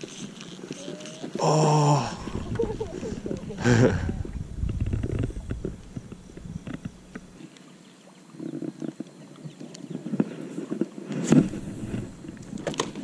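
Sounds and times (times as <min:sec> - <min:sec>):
wind rumble on microphone: 0:02.0 - 0:07.4.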